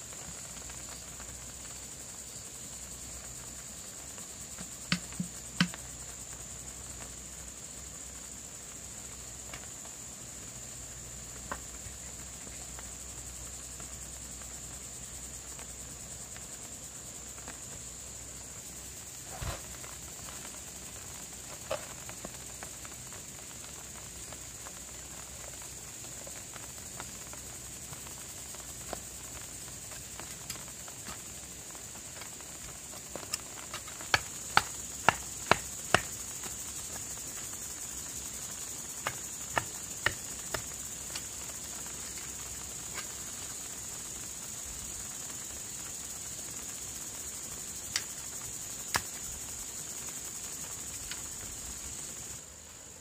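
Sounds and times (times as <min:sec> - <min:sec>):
high-pitched insect chorus: 0:00.0 - 0:53.0
wooden pole ramming soil: 0:04.6 - 0:05.8, 0:19.2 - 0:19.8, 0:33.1 - 0:36.5, 0:39.0 - 0:41.3.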